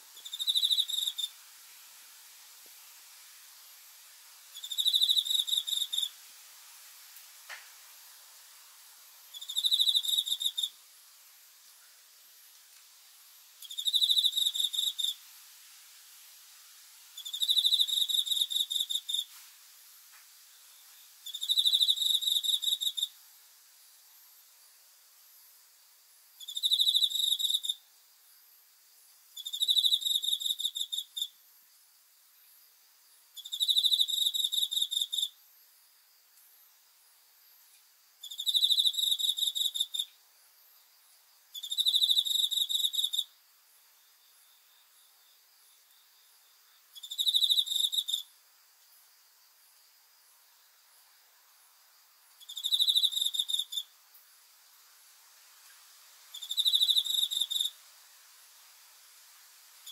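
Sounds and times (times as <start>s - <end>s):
cricket trilling: 0.0s - 1.5s, 4.5s - 6.2s, 9.2s - 10.8s, 13.6s - 15.2s, 17.1s - 19.4s, 20.6s - 23.2s, 26.4s - 54.8s, 55.6s - 57.9s, 59.1s - 59.9s.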